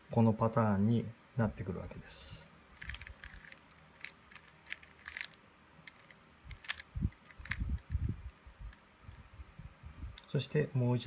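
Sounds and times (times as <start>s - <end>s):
puzzle cube plastic clicks: 2.8s - 9.2s.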